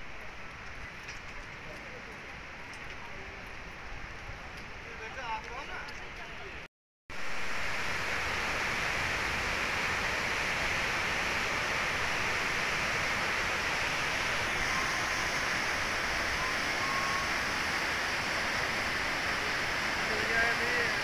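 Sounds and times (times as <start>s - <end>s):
rushing stream water: 7.1s - 21.0s.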